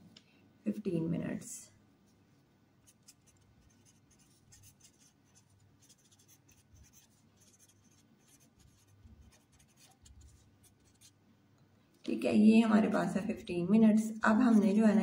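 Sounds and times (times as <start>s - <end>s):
pen scratching handwriting: 2.8s - 11.2s, 13.0s - 15.0s.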